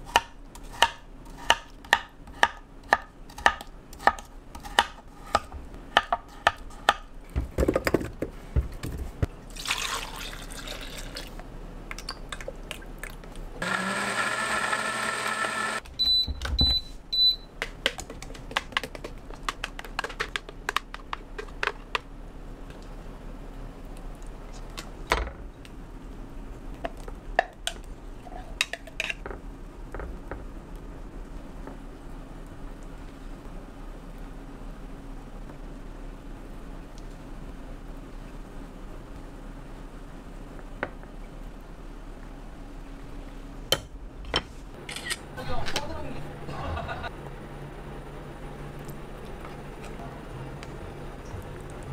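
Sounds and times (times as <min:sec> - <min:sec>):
knife chopping on cutting board: 0:00.1 - 0:07.1
liquid pouring: 0:09.5 - 0:11.4
blender running: 0:13.6 - 0:15.8.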